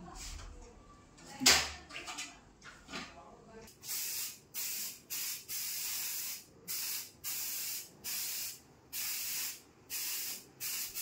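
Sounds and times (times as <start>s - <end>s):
aerosol spray can hissing: 3.9s - 11.0s.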